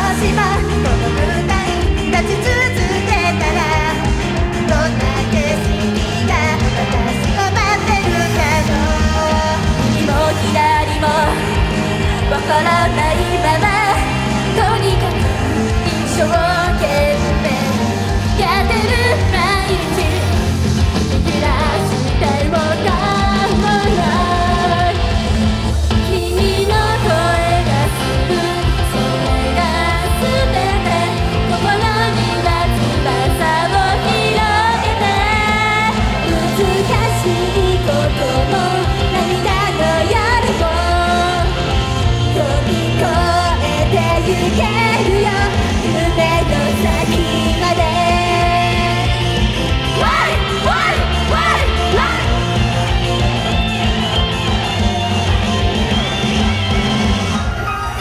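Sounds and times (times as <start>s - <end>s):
women singing pop song: 0.0s - 53.6s
backing music with heavy bass: 0.0s - 58.0s.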